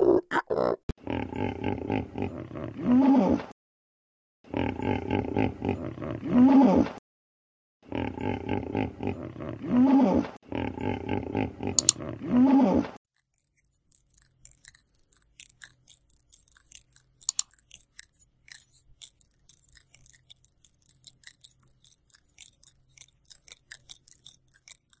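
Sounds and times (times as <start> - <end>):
dry clicks and crackles: 13.1 - 25.0.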